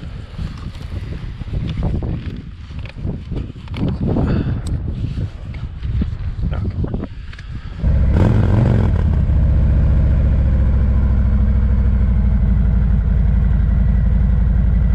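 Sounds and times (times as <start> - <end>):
motorcycle engine starting and idling: 7.8 - 14.9.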